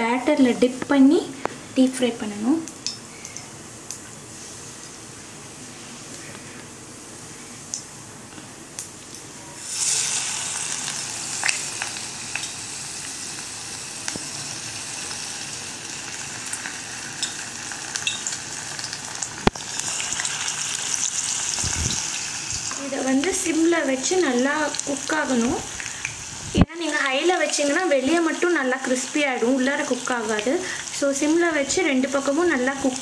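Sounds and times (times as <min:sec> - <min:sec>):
deep-frying sizzle in hot oil: 0:09.6 - 0:33.0.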